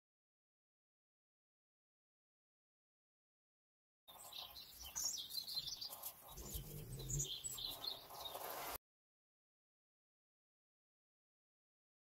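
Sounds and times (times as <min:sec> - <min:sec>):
birds chirping: 0:04.1 - 0:08.8.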